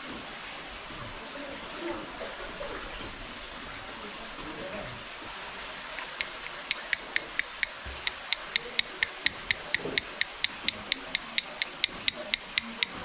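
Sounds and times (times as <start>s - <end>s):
wooden stick tapping needle holder: 6.0s - 13.0s.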